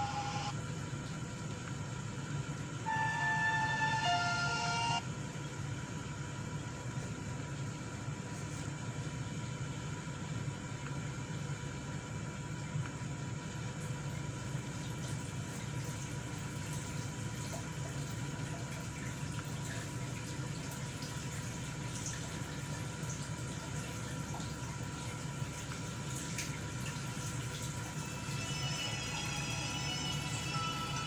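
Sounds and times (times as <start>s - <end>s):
faint electrical tone: 2.8s - 5.1s.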